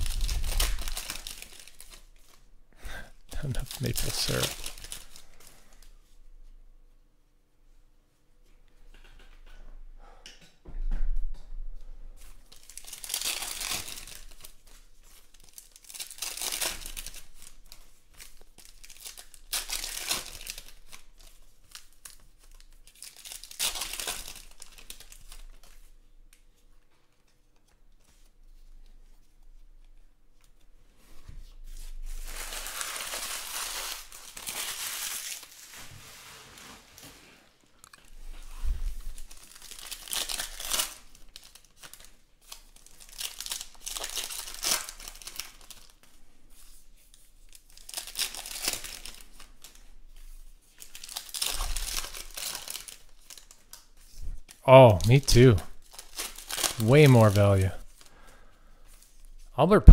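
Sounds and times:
card packs being torn open: 0.0 - 2.4, 3.4 - 5.4, 12.5 - 25.8, 32.2 - 35.8, 39.2 - 46.0, 47.5 - 49.8, 50.8 - 53.9, 55.8 - 58.1
foil wrappers crinkling: 0.0 - 2.5, 3.3 - 5.9, 12.4 - 26.0, 31.7 - 38.4, 39.0 - 59.5.

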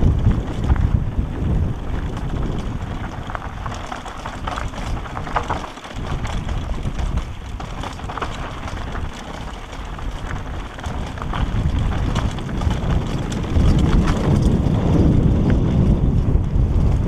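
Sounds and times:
tyres crunching on loose stones: 0.0 - 16.2
wind buffeting microphone: 0.0 - 17.0.

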